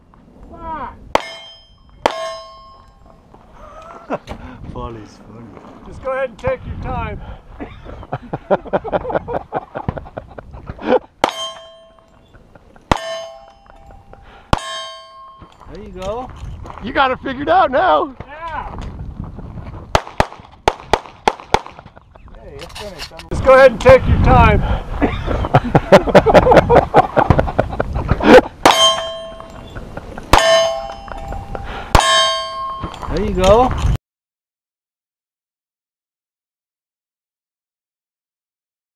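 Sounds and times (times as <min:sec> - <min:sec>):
steel target ringing: 0:01.1 - 0:03.2, 0:11.2 - 0:12.3, 0:12.9 - 0:15.7, 0:28.6 - 0:33.1
pistol shots: 0:19.9 - 0:21.8.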